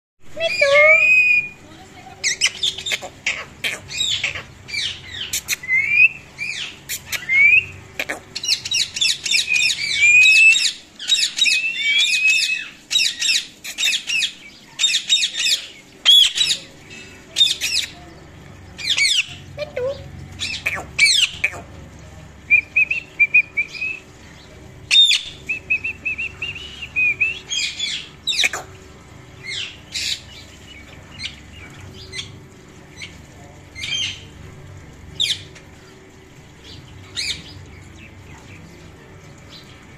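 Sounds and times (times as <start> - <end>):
parrots chirping and whistling: 0.4 - 1.6, 2.2 - 16.6, 18.8 - 21.6, 24.9 - 28.7.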